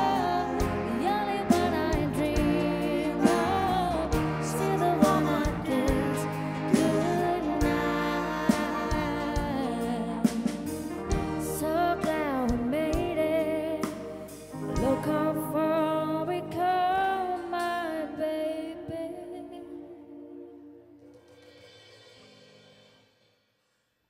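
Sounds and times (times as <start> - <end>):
man and woman singing: 0.0 - 10.4
live band playing: 0.0 - 18.4.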